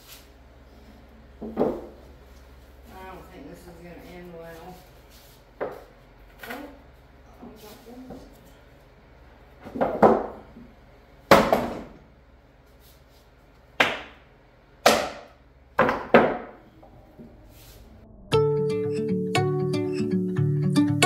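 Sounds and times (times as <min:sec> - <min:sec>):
wood pieces knocking on bench: 0:09.6 - 0:10.4, 0:15.8 - 0:16.6.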